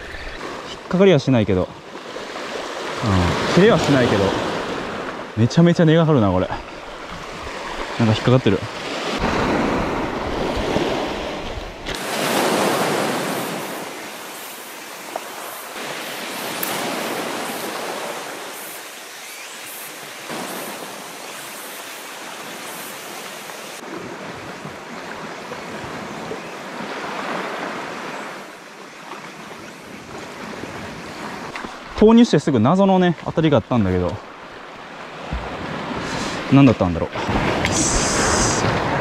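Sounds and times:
waves washing against rocks: 2.2s - 5.3s, 6.6s - 18.7s, 34.2s - 39.0s.

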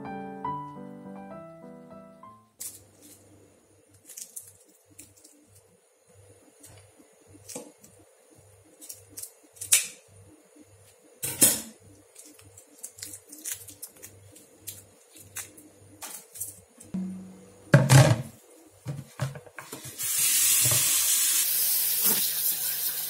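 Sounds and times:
faint steady hum: 2.2s - 19.8s.

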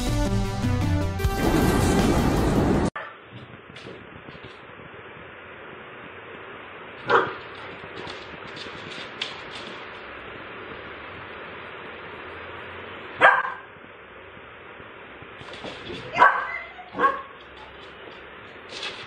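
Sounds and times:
puppy barking: 3.0s - 3.2s, 7.0s - 7.5s, 13.2s - 13.7s, 16.0s - 17.8s
steady low hiss: 3.3s - 19.0s.

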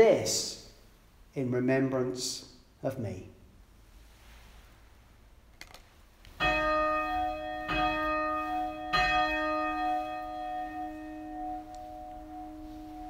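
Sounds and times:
bell ringing: 6.4s - 13.0s.

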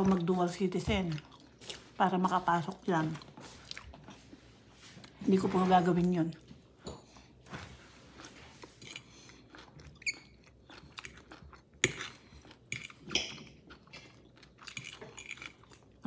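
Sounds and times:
person chewing food: 0.1s - 5.2s, 6.3s - 16.0s.

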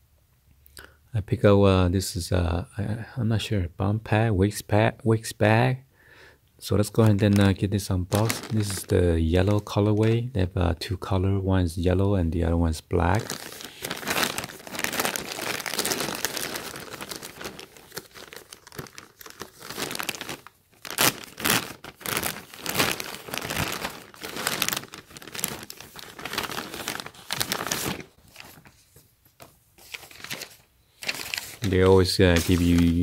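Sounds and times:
plastic mailer tearing: 6.8s - 10.2s, 13.0s - 28.7s, 29.9s - 33.0s
plastic mailer crinkling: 6.8s - 10.3s, 13.0s - 28.8s, 29.8s - 33.0s.

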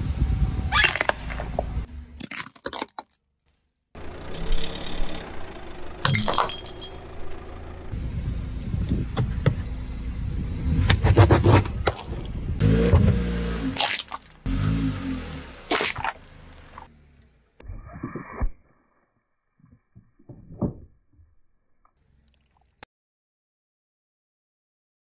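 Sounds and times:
tyre crushing objects: 13.8s - 14.4s.

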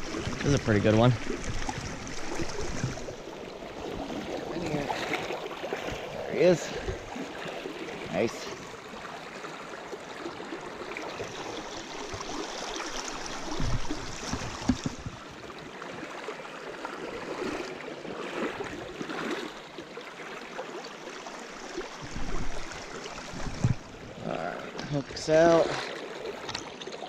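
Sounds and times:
stream rushing over rocks: 0.0s - 16.0s.

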